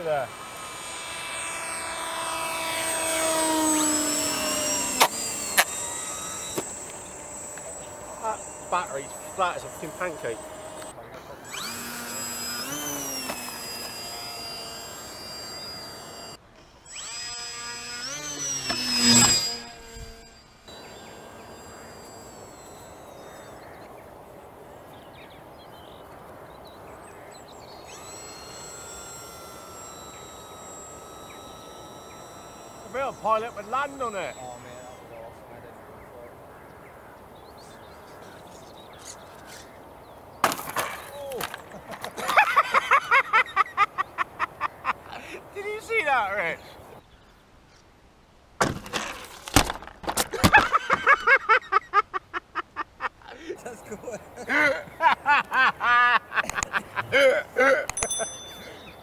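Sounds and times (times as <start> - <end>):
electric motor and propeller: 0.0 - 47.0, 48.6 - 59.0.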